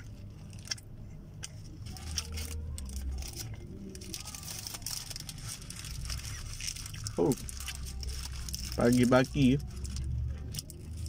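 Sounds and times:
person chewing: 0.0s - 8.8s
paper wrapper crinkling: 1.4s - 11.0s.

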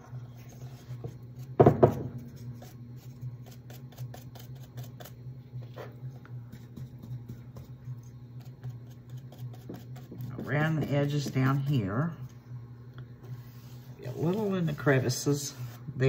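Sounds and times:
steady low hum: 0.0s - 16.0s
loud knock on wooden desk: 1.6s - 2.1s.

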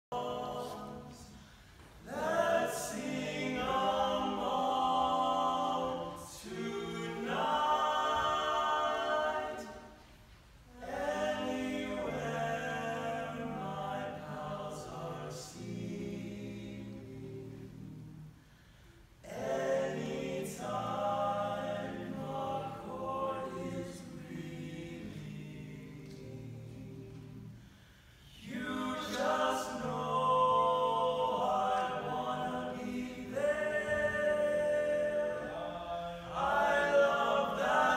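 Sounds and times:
male quartet singing a cappella: 0.0s - 10.0s, 10.7s - 37.9s.

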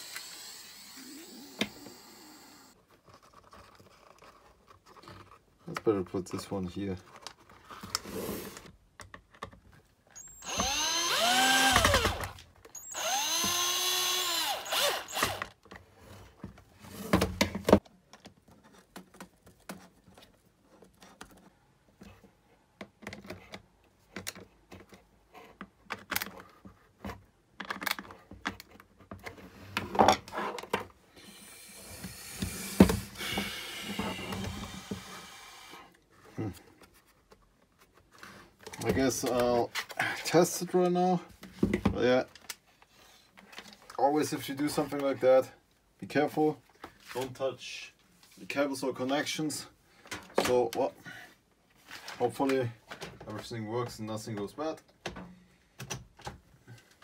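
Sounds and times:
cordless drill driving screws: 0.0s - 2.8s, 10.2s - 15.6s, 31.6s - 35.8s.

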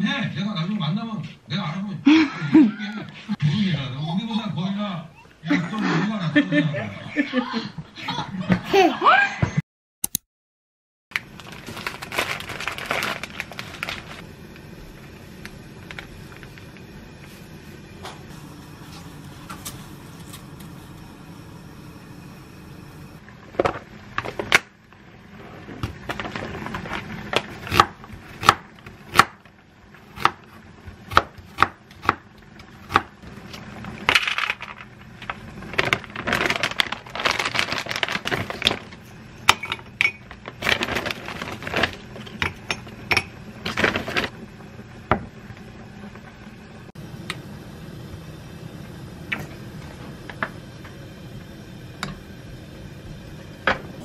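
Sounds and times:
frozen vegetables clicking and knocking: 11.1s - 14.2s, 25.8s - 29.5s, 33.8s - 39.0s, 39.8s - 42.7s
rustling: 35.3s - 39.0s.

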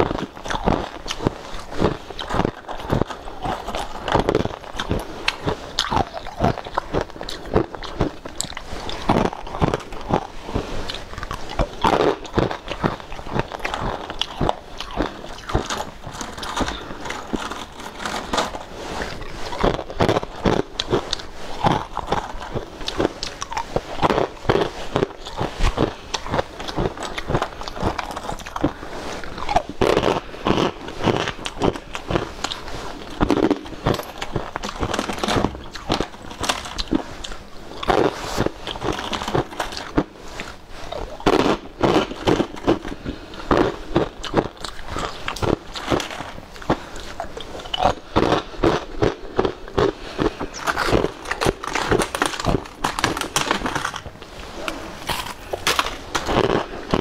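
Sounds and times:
crunching brittle food: 0.0s - 57.0s.

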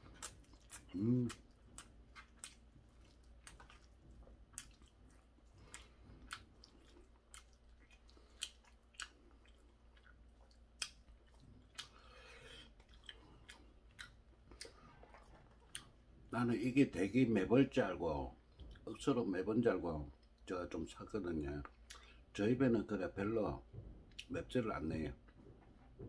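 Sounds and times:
chewing crunchy food: 0.0s - 16.3s.

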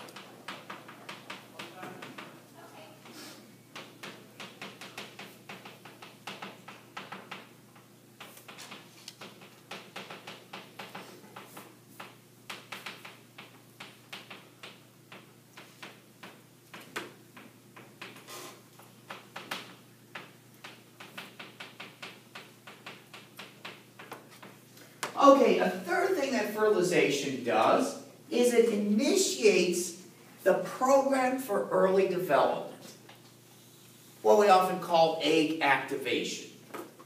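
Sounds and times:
chalk tapping and scratching: 3.0s - 24.6s.

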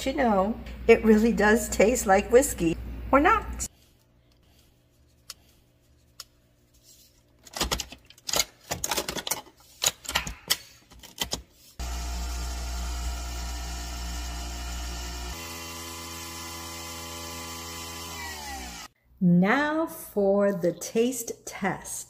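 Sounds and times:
coffee machine brewing hum: 11.8s - 16.2s.

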